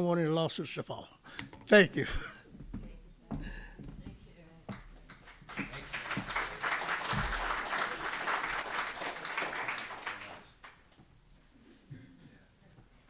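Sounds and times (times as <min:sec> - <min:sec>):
audience applauding: 0:05.1 - 0:10.9.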